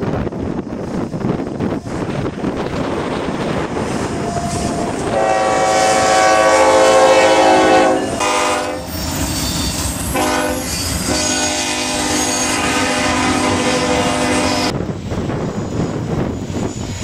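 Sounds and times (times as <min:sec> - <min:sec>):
train wheels clattering: 0:01.2 - 0:12.8
locomotive air horn: 0:04.2 - 0:14.7.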